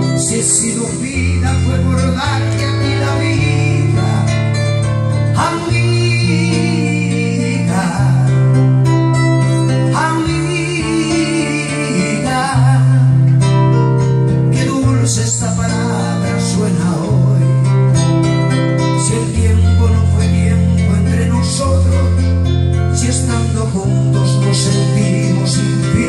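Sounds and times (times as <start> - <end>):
man singing: 0.0 - 13.6, 14.4 - 18.0, 18.6 - 26.0
bass line: 0.0 - 26.0
plucked guitar: 0.0 - 26.0.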